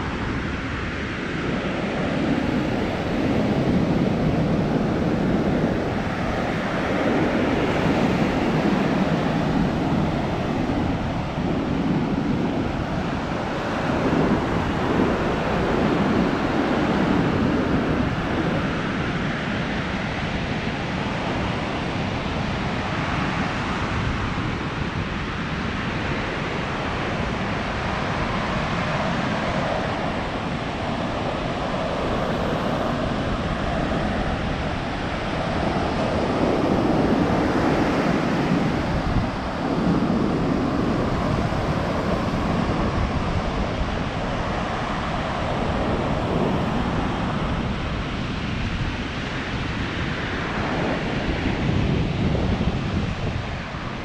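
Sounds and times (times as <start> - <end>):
wind rumbling on microphone: 0.0 - 54.0.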